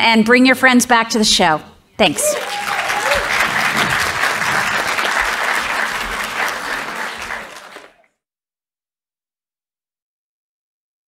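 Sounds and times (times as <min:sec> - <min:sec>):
audience applauding: 0:02.2 - 0:08.1.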